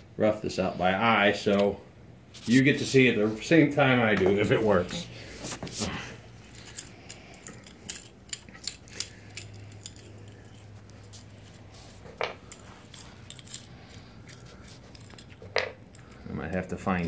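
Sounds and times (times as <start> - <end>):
light metallic clicks and clinks: 6.4 - 11.6, 12.2 - 17.0.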